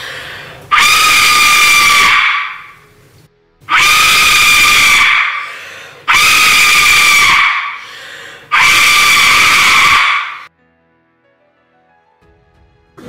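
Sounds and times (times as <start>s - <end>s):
clay whistle screaming blasts: 0.7s - 2.9s, 3.7s - 7.8s, 8.5s - 10.5s.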